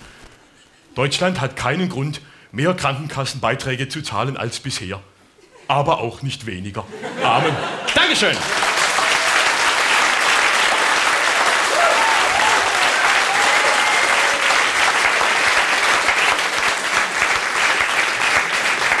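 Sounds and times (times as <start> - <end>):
audience applauding: 7.8 - 19.0.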